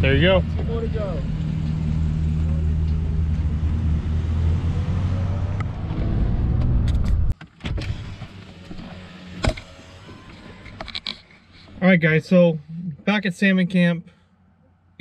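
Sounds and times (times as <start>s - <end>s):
truck engine pulling away: 0.0s - 7.3s.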